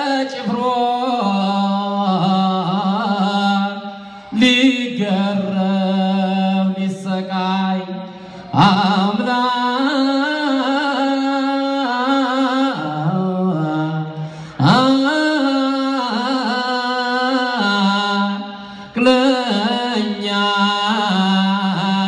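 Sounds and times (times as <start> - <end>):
man chanting: 0.0 - 22.0
man taking a breath: 4.0 - 4.4, 14.2 - 14.6, 18.6 - 19.0.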